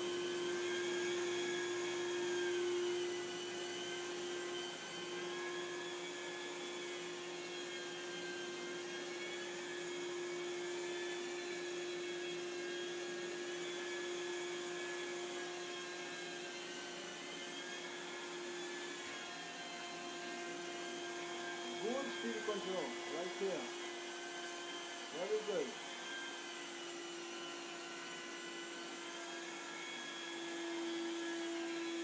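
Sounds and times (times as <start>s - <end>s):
carpet extraction machine running: 21.3s - 26.2s.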